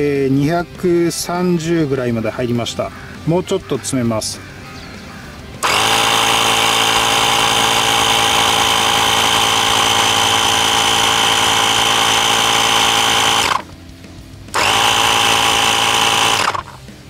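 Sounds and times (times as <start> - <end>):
tyre compressor humming: 5.6 - 13.8, 14.5 - 16.9.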